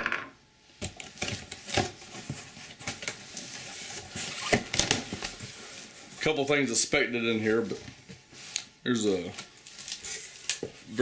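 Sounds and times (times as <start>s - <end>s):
cardboard tearing and handling: 1.0s - 5.4s, 9.6s - 10.7s.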